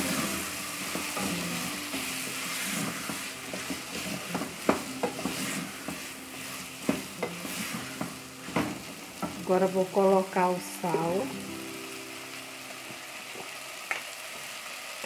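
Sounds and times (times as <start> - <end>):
gherkins sizzling in a pot: 0.0 - 15.0
wooden spoon knocking on pot: 3.0 - 6.1, 6.8 - 9.5.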